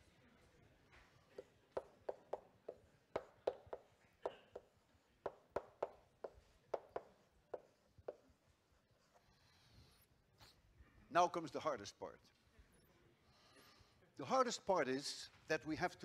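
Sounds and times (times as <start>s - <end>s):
chalk tapping on blackboard: 1.3s - 9.2s.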